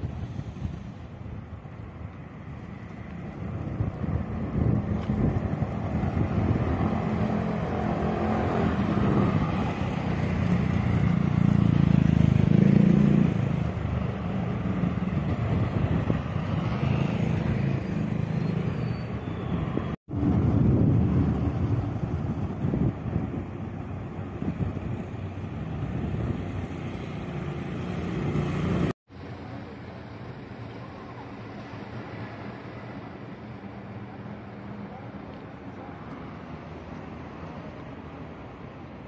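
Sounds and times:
vehicle approaching: 0.0 - 34.7
motor scooter passing: 2.5 - 22.9, 23.8 - 29.0.

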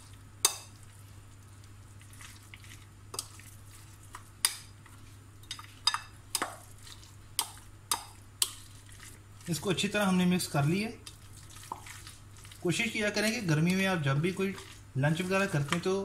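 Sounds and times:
spoon stirring salad: 0.0 - 16.0.

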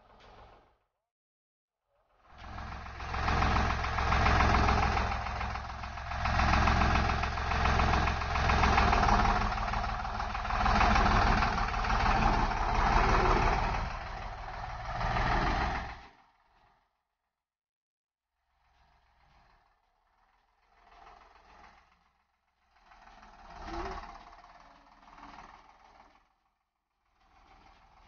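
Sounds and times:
tractor diesel engine running: 2.4 - 16.5, 18.8 - 26.4, 27.1 - 28.0.

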